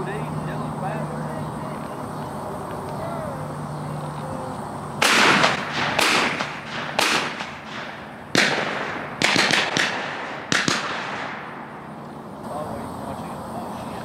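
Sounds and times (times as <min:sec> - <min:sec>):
shotgun shots: 0:05.0 - 0:12.0.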